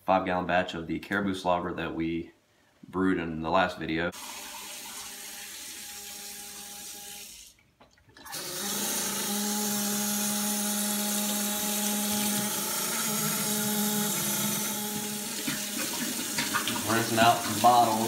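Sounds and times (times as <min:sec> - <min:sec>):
tap water running into pot: 0:04.2 - 0:09.4, 0:11.1 - 0:18.0.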